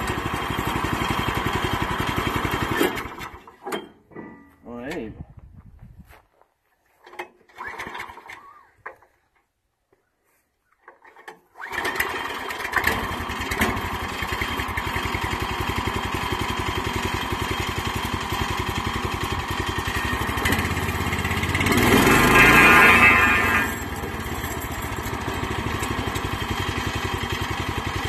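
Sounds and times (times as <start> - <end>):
single-cylinder engine running: 0.0 - 3.5, 11.6 - 28.0.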